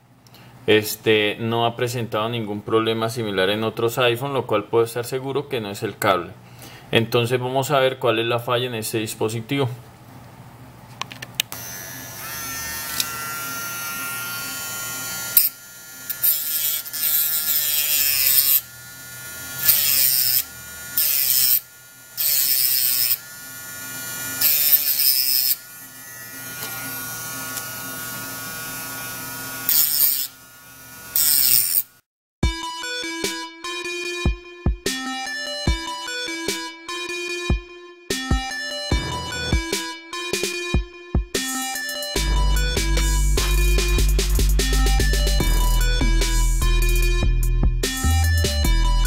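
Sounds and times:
rotary grinder whining and grinding: 11.5 - 32.0.

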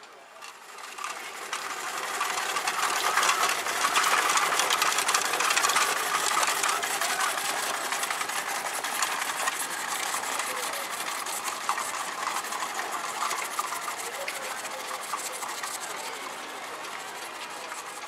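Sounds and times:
small engine clattering: 0.0 - 18.0.

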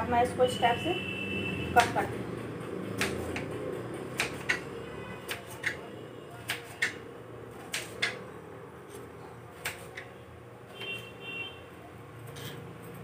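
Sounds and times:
knife chopping on a board: 2.9 - 5.8, 6.4 - 7.0, 7.6 - 8.2, 8.9 - 10.2.

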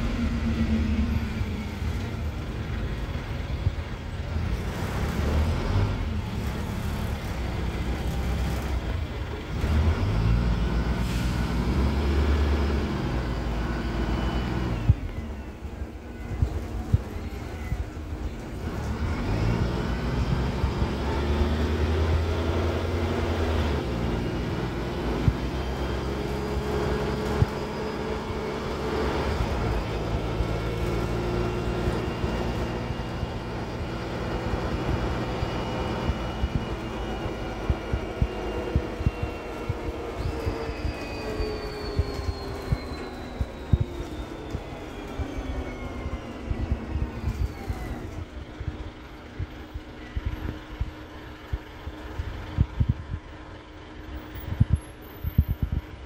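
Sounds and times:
bus diesel engine: 0.0 - 56.0
drivetrain whine: 0.0 - 56.0.

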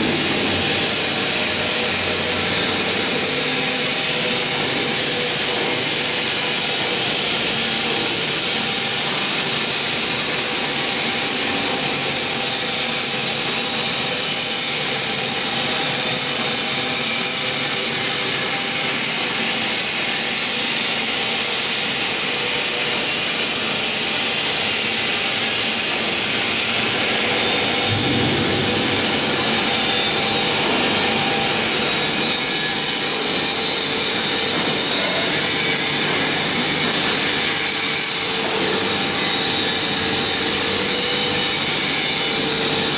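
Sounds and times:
machinery rushing noise: 0.0 - 6.7, 23.0 - 36.1
constant hum tones: 25.4 - 35.2
low rumble: 27.8 - 30.4.

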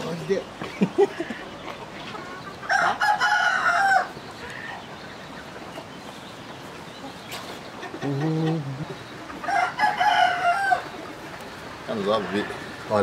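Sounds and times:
rooster crowing: 2.7 - 4.2, 9.4 - 11.0.

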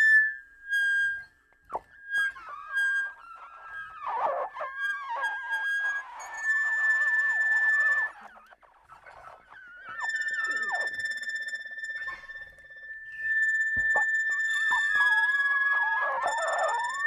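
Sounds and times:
gliding electronic pitches: 11.6 - 17.0.

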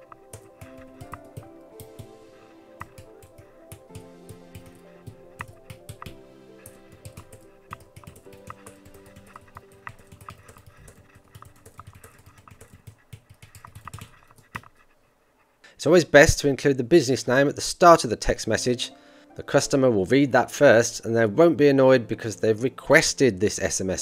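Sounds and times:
quiet background music: 0.0 - 15.0, 15.8 - 24.0.

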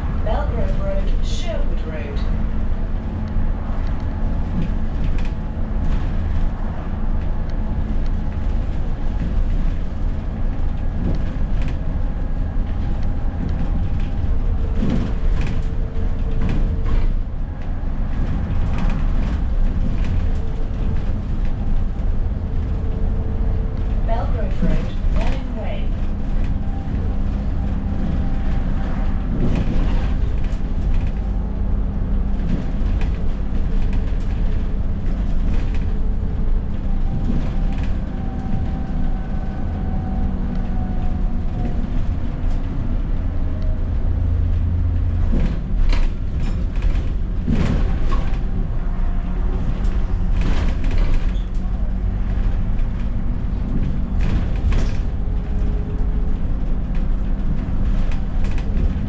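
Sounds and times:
bus body creaking and rattling: 0.0 - 59.0
bus engine drone with whine: 0.0 - 59.0.

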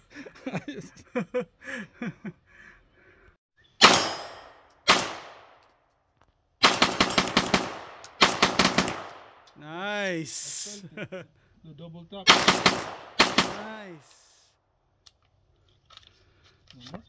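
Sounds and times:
gunshots with echo: 3.8 - 5.6, 6.6 - 9.4, 12.3 - 13.9
rapid gunfire: 6.6 - 9.4, 12.3 - 13.8.

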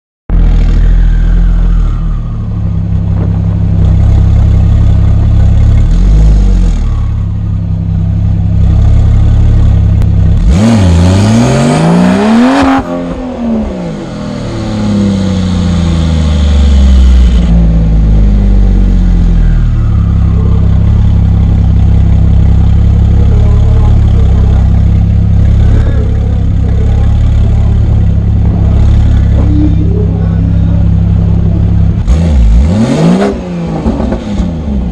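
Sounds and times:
car engines idling: 0.3 - 34.9
engine revving hard: 10.4 - 21.6, 22.5 - 34.9.

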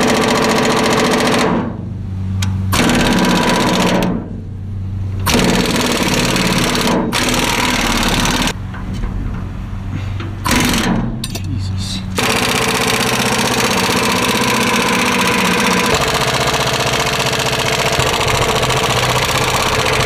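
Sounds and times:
impact wrench hammering: 2.4 - 4.4, 5.2 - 8.6, 10.2 - 11.5, 12.2 - 20.0.

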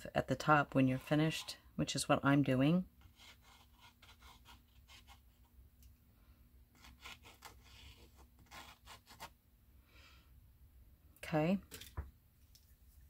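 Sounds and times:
pen scratching on paper: 3.0 - 5.4, 6.8 - 9.3.

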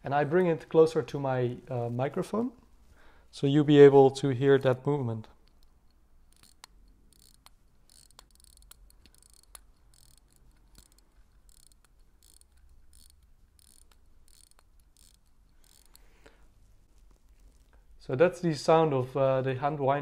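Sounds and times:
watch winding ratcheting: 4.5 - 16.4.

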